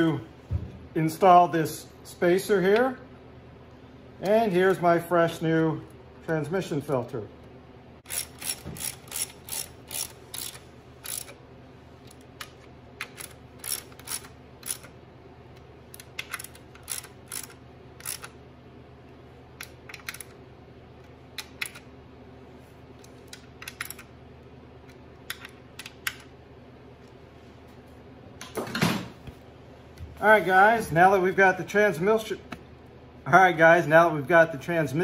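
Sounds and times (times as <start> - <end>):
hand ratchet clicking: 8.0 - 11.4, 12.1 - 14.9, 16.0 - 18.3.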